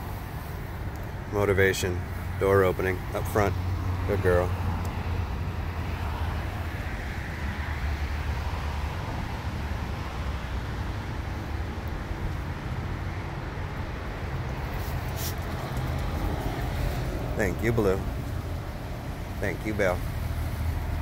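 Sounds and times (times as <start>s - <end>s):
traffic engine rumble: 0.0s - 21.0s
wind: 0.0s - 21.0s
brief rustle: 14.7s - 16.0s.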